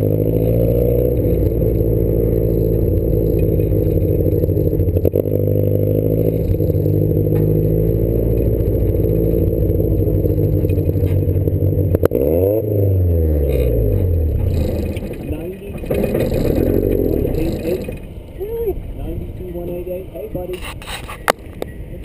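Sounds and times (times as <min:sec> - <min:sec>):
car engine accelerating: 0:00.0 - 0:20.6.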